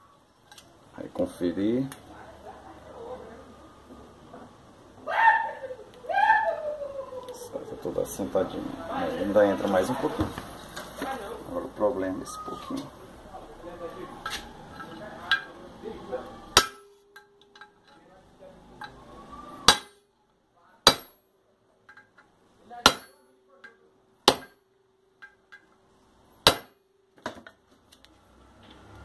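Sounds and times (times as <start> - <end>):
hammer striking metal punch: 16.5 - 17.7, 19.6 - 20.1, 20.9 - 21.2, 22.8 - 25.6, 26.4 - 26.9.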